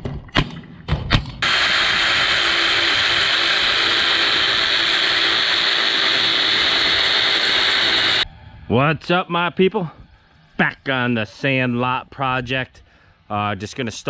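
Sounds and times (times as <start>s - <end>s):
power tool running: 1.4s - 8.3s.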